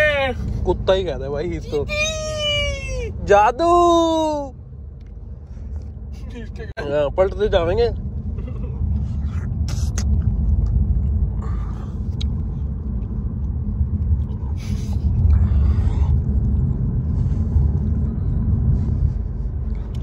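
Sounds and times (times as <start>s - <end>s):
car interior road rumble: 0.0s - 20.0s.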